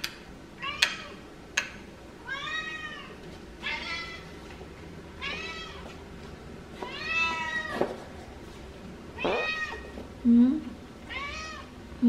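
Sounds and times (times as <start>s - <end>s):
cat meowing: 2.2s - 4.3s, 5.2s - 5.8s, 6.8s - 7.8s, 9.2s - 9.9s, 11.1s - 11.7s.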